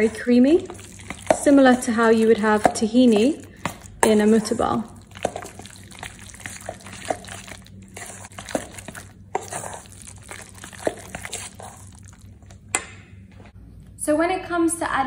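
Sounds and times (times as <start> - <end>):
spoon squelching thick paste: 0.0 - 12.9
spoon knocking and scraping bowl: 0.7 - 11.9.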